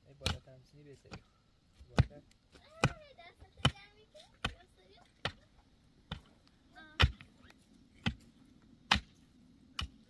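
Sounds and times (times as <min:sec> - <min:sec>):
pickaxe striking stony earth: 0:07.0 - 0:07.3, 0:08.0 - 0:08.3, 0:08.9 - 0:09.2, 0:09.8 - 0:10.0.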